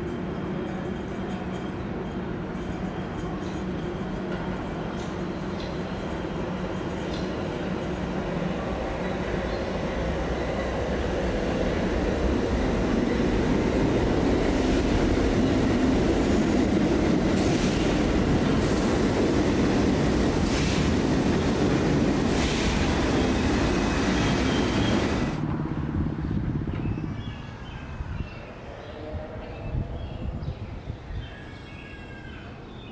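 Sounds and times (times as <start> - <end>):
sharp train clatters: 0.0 - 25.4
train wheels rumbling on rails: 0.0 - 27.3.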